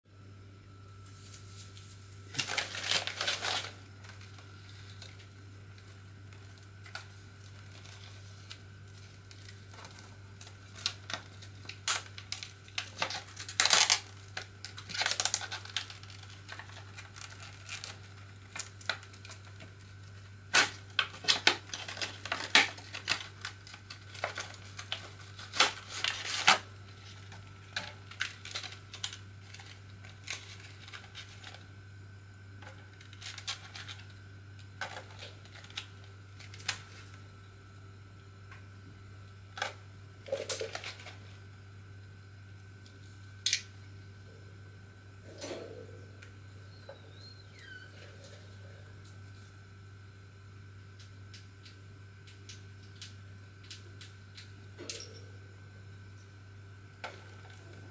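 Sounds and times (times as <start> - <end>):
steady low hum: 0.1 - 57.9
plastic packaging crinkling: 0.7 - 37.3, 39.4 - 41.6.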